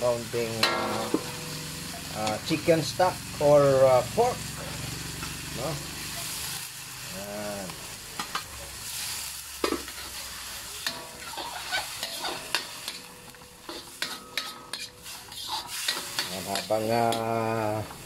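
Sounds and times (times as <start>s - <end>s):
food sizzling in a pan: 0.0s - 18.0s
utensil scraping a pan: 9.6s - 13.0s, 13.6s - 17.4s.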